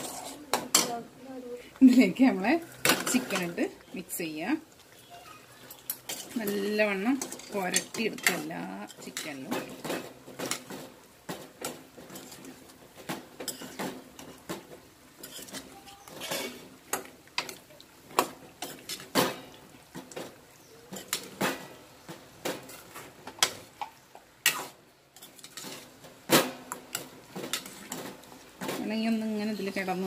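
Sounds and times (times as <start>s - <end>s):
spoon scraping a steel pan: 0.0s - 0.9s, 2.8s - 3.6s, 5.9s - 9.7s, 15.2s - 16.7s, 26.9s - 28.1s.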